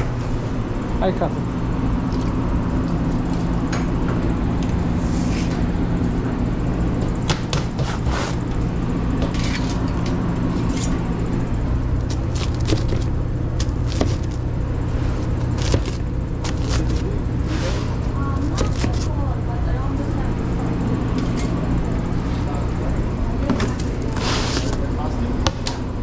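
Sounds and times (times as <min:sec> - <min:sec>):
oven and ventilation drone: 0:00.0 - 0:26.0
knife cutting pizza on board: 0:07.3 - 0:08.4, 0:12.1 - 0:14.4, 0:15.3 - 0:17.9, 0:18.5 - 0:19.1.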